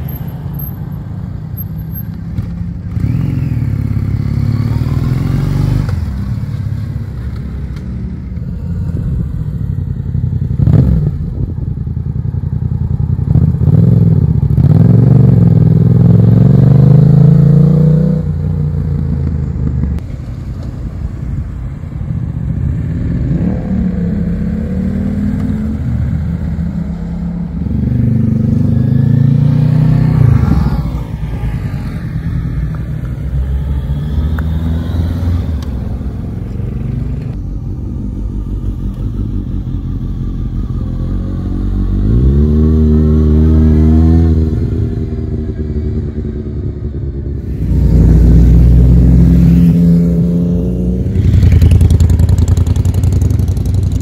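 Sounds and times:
motorcycles riding past: 0.0 - 11.4, 22.2 - 37.4, 38.2 - 54.0.

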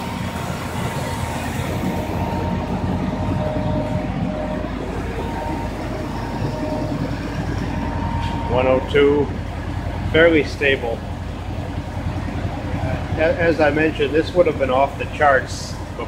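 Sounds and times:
car engine idling: 0.0 - 16.0
vacuum motor droning: 0.0 - 16.0.

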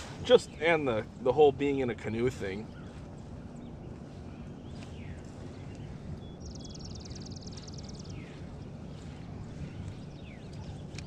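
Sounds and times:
low outdoor rush: 0.0 - 11.0
songbird trill: 0.0 - 11.0
faint bird chirps: 2.2 - 11.0.

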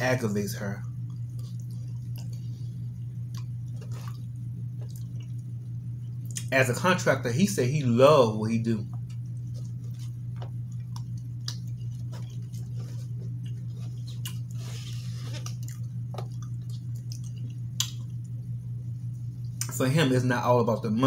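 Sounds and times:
steady low hum: 0.0 - 21.0
chewing and wet mouth noises: 0.8 - 6.5, 8.8 - 19.8.

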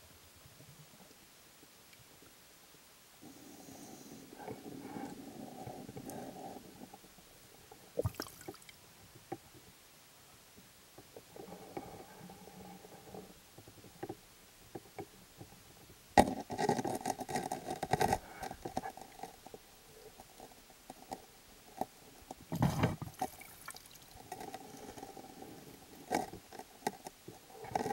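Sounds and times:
small clicks and ticks: 13.5 - 22.5, 23.2 - 27.9.

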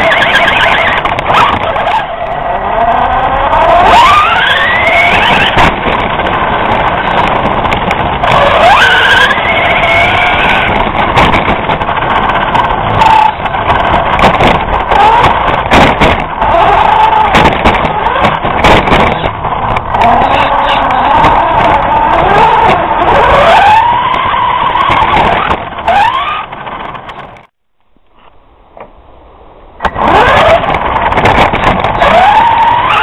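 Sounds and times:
rattles and knocks of car bouncing: 0.1 - 27.5, 29.8 - 33.0
rc car motor whine: 1.6 - 5.6.

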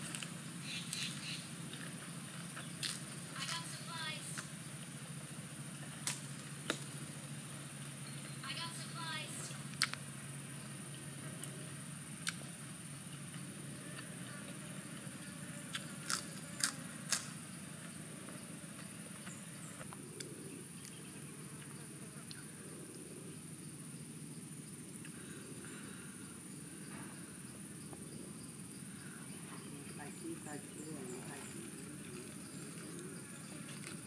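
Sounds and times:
lettuce leaves snapping: 0.0 - 1.3, 2.8 - 3.6, 6.0 - 6.9, 15.7 - 17.4
insects droning: 0.0 - 34.0.

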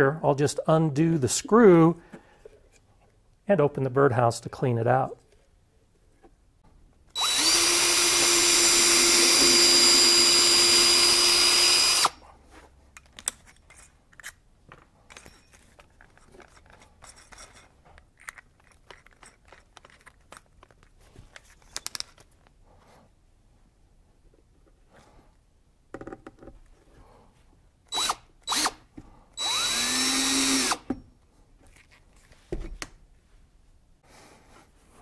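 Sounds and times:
cordless drill boring into wood: 7.1 - 12.2, 27.9 - 28.8, 29.4 - 30.9
light clicks and handling noises: 12.5 - 22.6.

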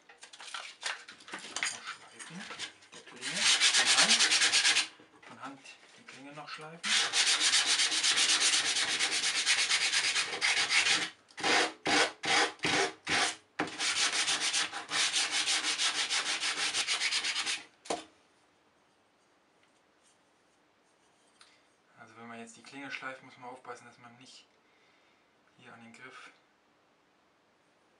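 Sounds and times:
sandpaper rubbing on wood: 2.6 - 5.0, 6.8 - 17.6.

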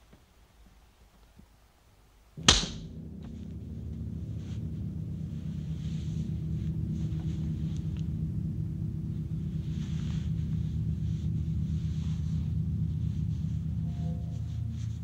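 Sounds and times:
sharp loud crack: 2.4 - 3.0
low drone of held tones: 2.4 - 15.0.

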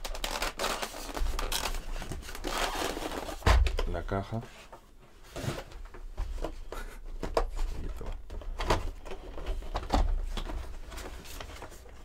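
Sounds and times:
plastic packaging crackling: 0.0 - 3.4.

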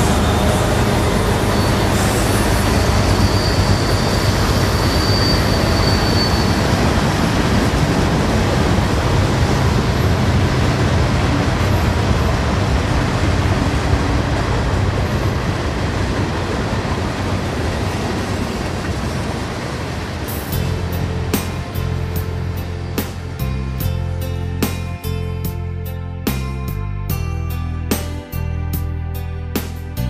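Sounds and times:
thin high squeal: 0.0 - 7.0.

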